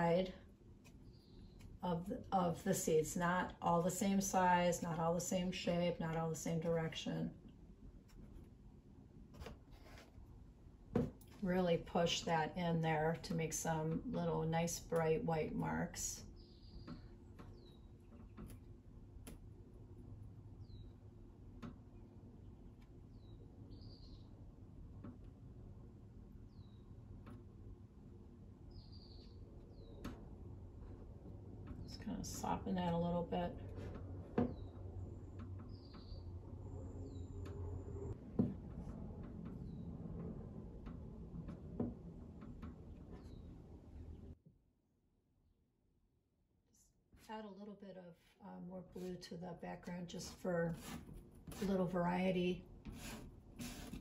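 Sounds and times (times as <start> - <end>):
low steady hum: 0.0 - 44.4
pastel scratching on paper: 50.3 - 51.8, 52.9 - 54.0.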